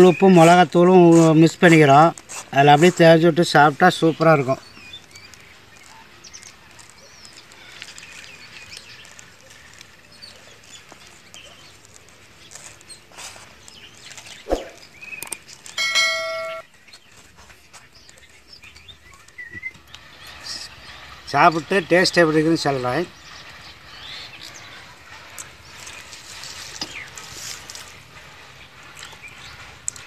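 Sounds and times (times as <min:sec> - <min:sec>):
bright ringing ding: 0:15.8 - 0:16.6.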